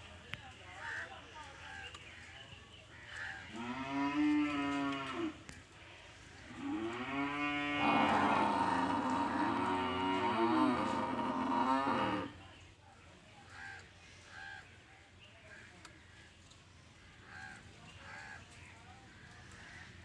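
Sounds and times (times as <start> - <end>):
cattle mooing: 6.6 - 12.4.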